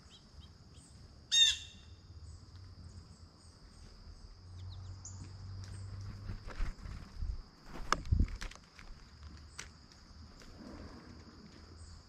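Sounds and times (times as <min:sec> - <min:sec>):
faint bird chirps: 0:00.0 - 0:06.0
blue jay call: 0:01.3 - 0:02.0.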